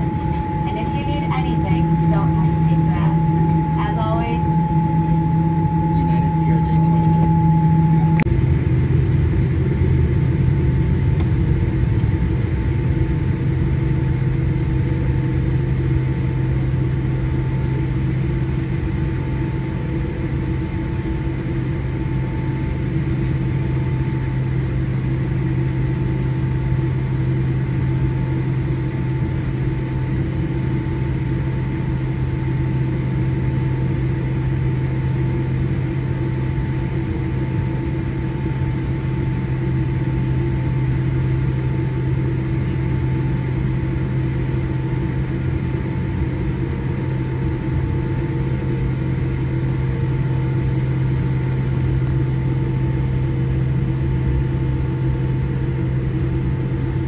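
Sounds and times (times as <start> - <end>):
faint steady whine: 0.0 - 57.0
low cabin drone: 0.0 - 57.0.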